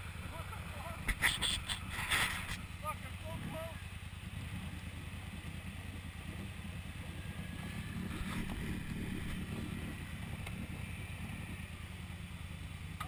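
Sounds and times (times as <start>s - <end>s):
atv engine rumbling: 0.0s - 13.0s.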